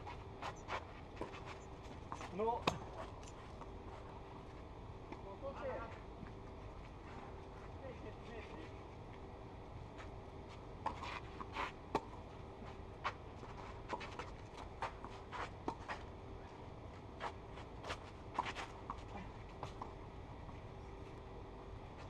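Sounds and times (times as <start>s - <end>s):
shoes scraping on clay: 0.0s - 4.2s, 10.0s - 16.1s, 16.9s - 19.9s
faint steady hum: 0.0s - 22.0s.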